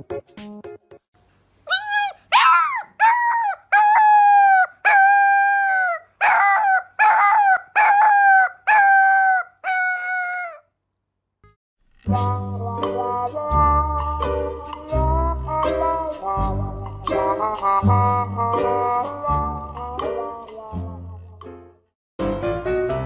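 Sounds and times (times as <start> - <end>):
music: 0.0 - 1.1, 11.9 - 23.0
puppy howling: 1.7 - 10.6.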